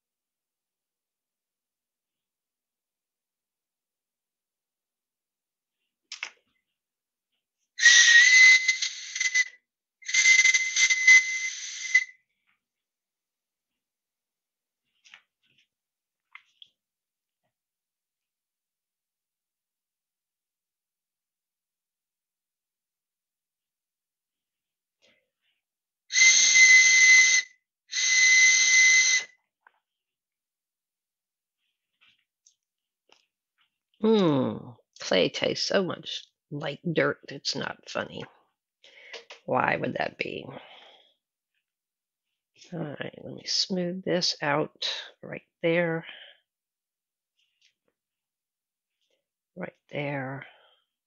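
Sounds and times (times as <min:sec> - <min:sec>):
breathy clay whistle: 0:07.8 - 0:12.4, 0:26.1 - 0:29.5.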